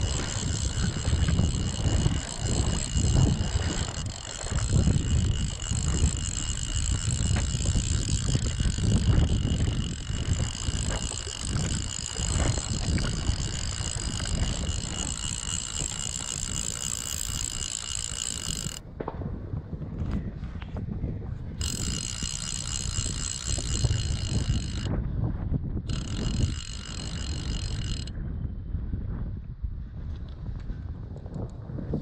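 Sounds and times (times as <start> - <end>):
fishing reel drag buzzing: 0.0 - 18.8, 21.6 - 24.9, 25.9 - 28.1.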